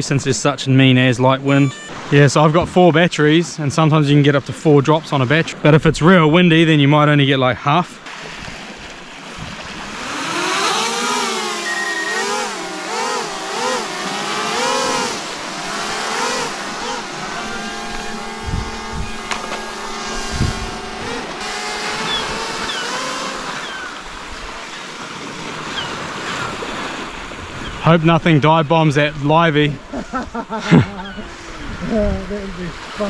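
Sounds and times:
drone propellers whining: 9.2 - 25.8
low thumps: 12.8 - 23.8.

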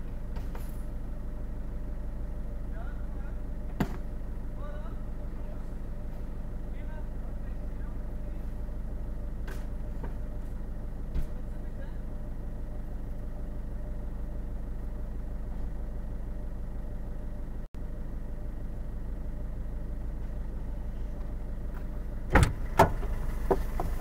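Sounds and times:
car engine idling: 0.0 - 24.0
car door opening and shutting: 22.3 - 24.0.

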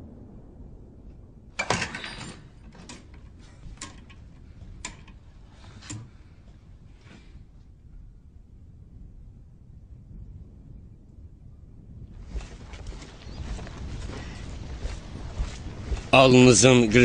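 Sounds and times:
sharp clicks of wood and metal: 1.6 - 6.2
loud clattering rattle: 1.6 - 6.3.

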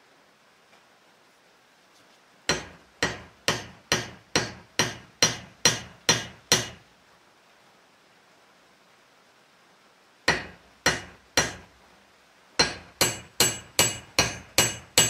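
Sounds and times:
hatchet handle knocking on steel: 2.5 - 6.8, 10.3 - 11.7, 12.6 - 15.0.

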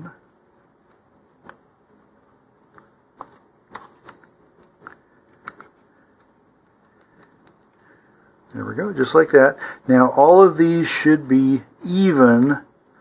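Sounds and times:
plastic handling clicks: 2.7 - 7.8.

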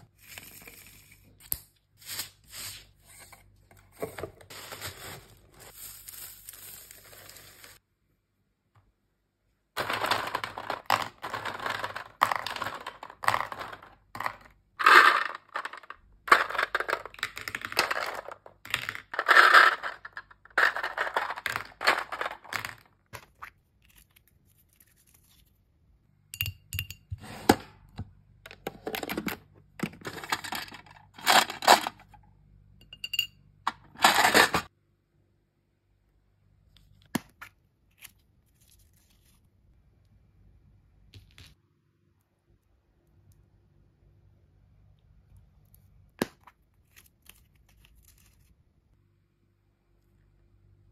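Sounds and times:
small plastic balls clattering: 9.8 - 23.4, 28.6 - 32.1, 33.7 - 34.7.

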